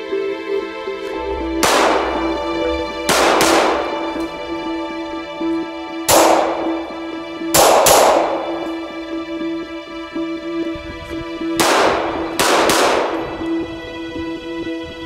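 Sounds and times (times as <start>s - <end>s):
background music: 0.0s - 15.0s
pistol shots: 1.6s - 4.3s, 6.1s - 6.9s, 7.6s - 8.8s, 11.6s - 13.5s.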